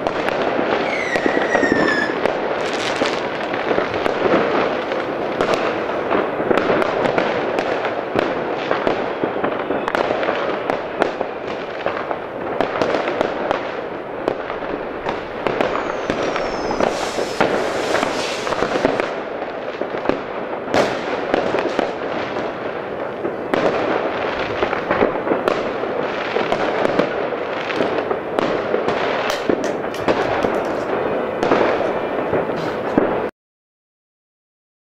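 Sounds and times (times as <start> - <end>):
falling firework whistle: 0.0 - 4.6, 15.0 - 19.2
rocket bursts: 0.0 - 7.1, 14.2 - 19.4
firecracker bangs: 0.0 - 33.3
fireworks crackle: 0.0 - 33.3.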